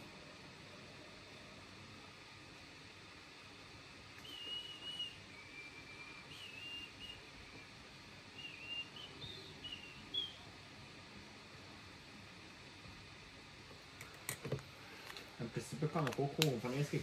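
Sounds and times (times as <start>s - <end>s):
faint steady hiss: 0.0s - 17.0s
person whistling a tune: 4.2s - 7.2s.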